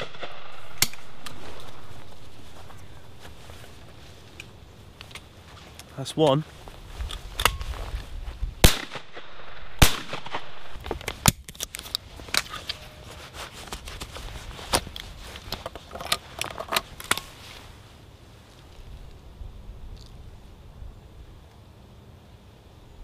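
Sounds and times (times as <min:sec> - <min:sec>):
shotgun shots: 0:00.0 - 0:01.3, 0:08.6 - 0:10.8.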